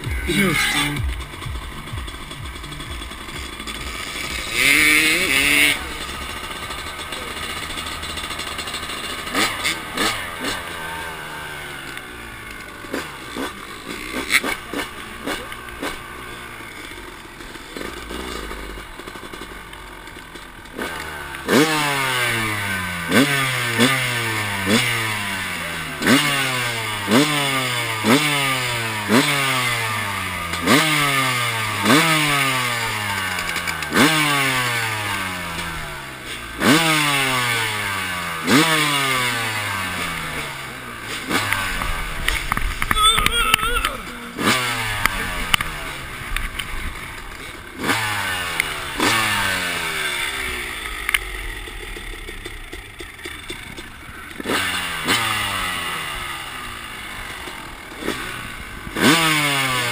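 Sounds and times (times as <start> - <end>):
dirt bike engine revving: 0.0 - 59.9
clicks: 41.4 - 44.2.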